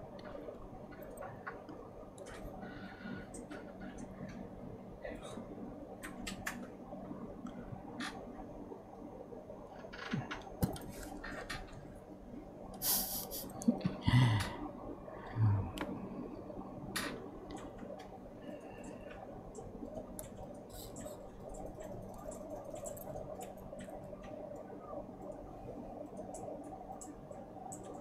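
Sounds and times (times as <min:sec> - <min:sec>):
steady low hum: 0:00.0 - 0:28.0
short hiss: 0:12.8 - 0:13.5.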